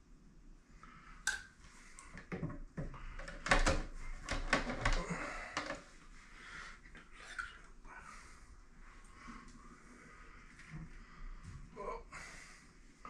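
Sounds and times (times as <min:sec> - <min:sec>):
plastic pipe knocking and scraping: 0:02.1 - 0:05.9.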